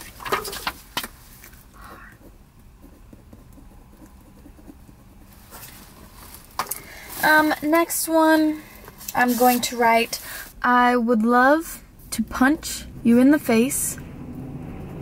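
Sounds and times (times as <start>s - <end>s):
paper rustling: 0.0s - 1.6s.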